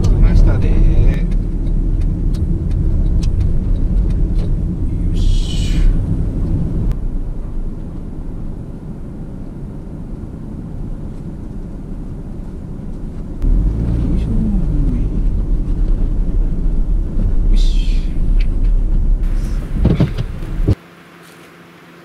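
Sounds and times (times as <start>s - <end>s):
car engine: 0.0s - 22.0s
road rumble: 0.0s - 22.0s.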